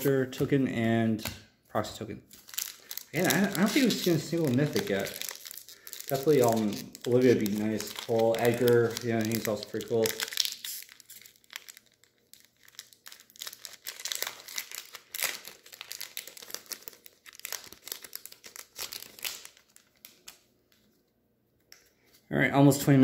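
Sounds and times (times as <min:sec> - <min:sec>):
foil wrapper crinkling and tearing: 0:02.3 - 0:20.4.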